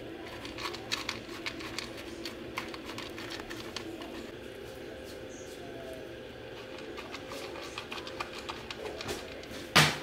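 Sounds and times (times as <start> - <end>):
faint hum: 0.0 - 10.0.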